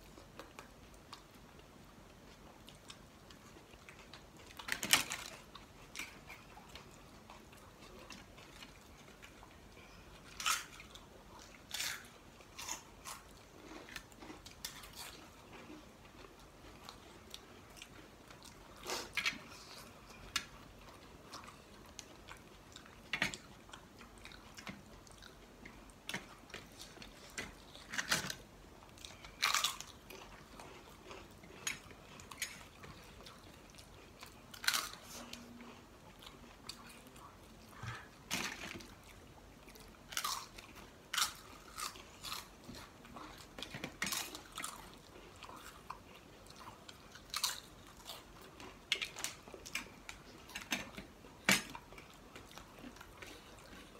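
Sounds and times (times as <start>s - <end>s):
quiet chewing: 0.0s - 53.9s
crisp food crunching: 21.2s - 37.1s, 38.3s - 53.9s.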